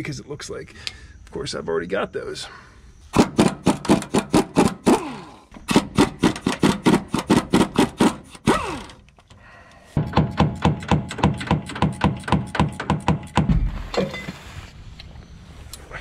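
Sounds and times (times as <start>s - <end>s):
impact wrench hammering bolt: 3.2s - 5.0s, 5.6s - 9.0s, 10.0s - 13.6s
impact wrench motor whining down: 3.2s - 9.1s.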